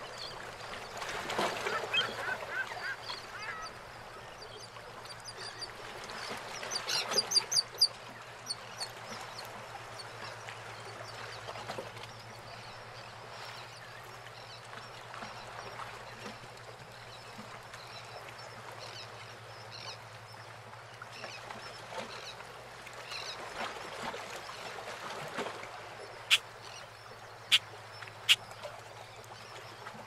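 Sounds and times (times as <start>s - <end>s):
water washing around boats: 0.0s - 30.0s
birds calling: 1.1s - 4.0s.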